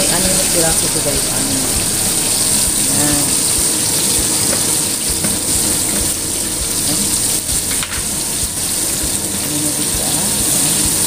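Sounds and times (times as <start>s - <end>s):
chicken frying in hot oil: 0.0s - 11.0s.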